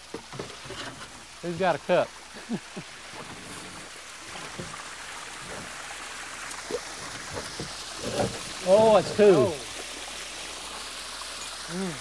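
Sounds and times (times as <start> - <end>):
water trickling: 0.0 - 12.0.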